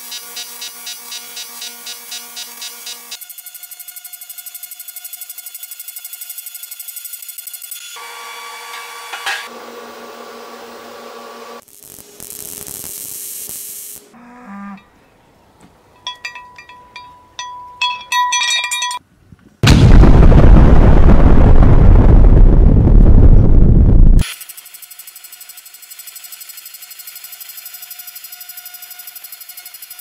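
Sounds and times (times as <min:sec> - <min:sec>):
welding arc buzzing and hissing: 0:00.0 - 0:14.2
loud explosion blast: 0:19.6 - 0:24.2.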